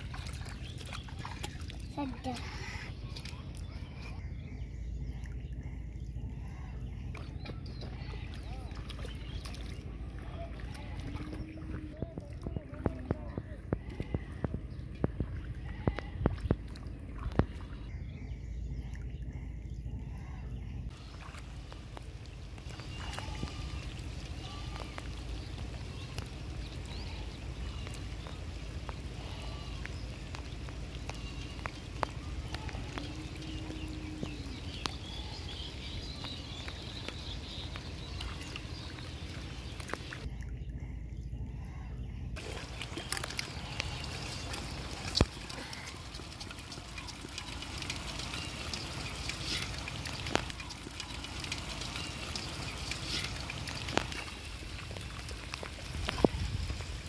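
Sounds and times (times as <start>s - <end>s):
sharp ticks and splashes: 0.0s - 4.2s, 4.8s - 20.3s, 20.9s - 40.7s, 42.4s - 57.0s
water sloshing and trickling: 0.0s - 57.0s
light rain on water: 20.9s - 40.3s, 42.4s - 57.0s.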